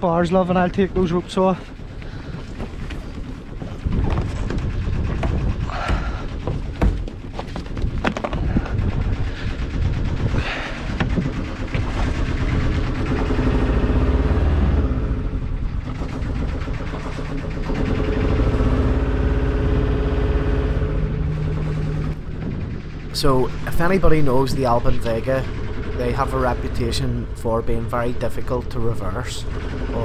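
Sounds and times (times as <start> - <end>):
boat diesel engine knocking: 0.0 - 30.0
sharp knocks: 3.9 - 8.8.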